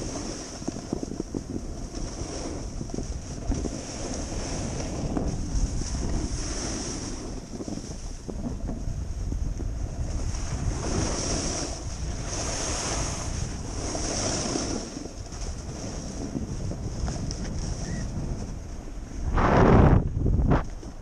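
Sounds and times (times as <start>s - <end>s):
snowboard scraping snow: 0.0s - 21.0s
wind buffeting microphone: 0.0s - 21.0s.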